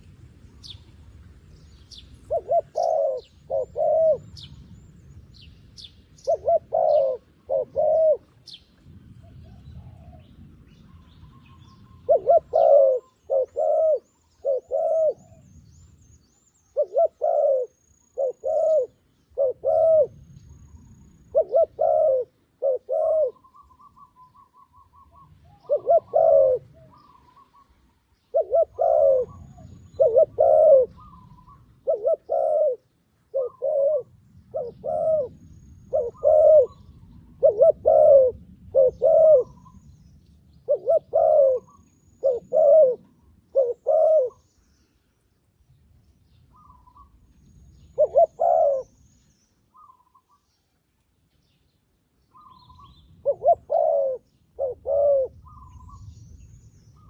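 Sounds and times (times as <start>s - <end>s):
dove cooing: 2.1s - 4.5s, 6.2s - 8.6s, 10.9s - 15.5s, 16.7s - 20.2s, 21.3s - 39.8s, 40.6s - 44.4s, 47.9s - 48.9s, 52.3s - 56.1s.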